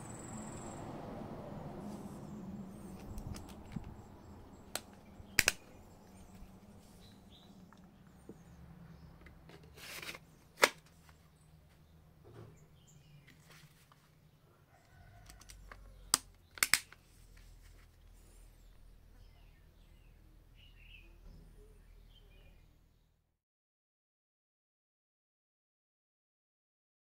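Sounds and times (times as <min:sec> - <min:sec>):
plastic sheath clicks and snaps: 0:03.0 - 0:04.0, 0:04.7 - 0:05.7, 0:09.2 - 0:11.0, 0:15.2 - 0:17.0
plastic scrape: 0:09.2 - 0:11.2.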